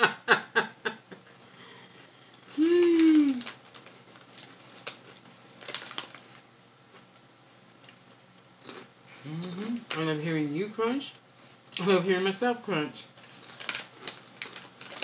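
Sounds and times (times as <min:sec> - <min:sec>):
person humming: 0:02.5 - 0:03.5, 0:09.2 - 0:09.8
chips being chewed: 0:02.5 - 0:06.3, 0:07.8 - 0:10.1, 0:13.2 - 0:15.0
chip bag crackling: 0:02.5 - 0:06.4, 0:07.8 - 0:10.2, 0:13.1 - 0:15.0.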